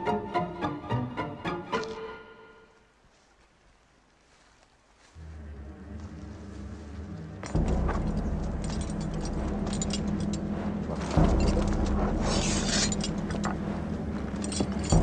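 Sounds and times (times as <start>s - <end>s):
low steady drone: 5.2s - 15.0s
horse harness jingling: 7.3s - 15.0s.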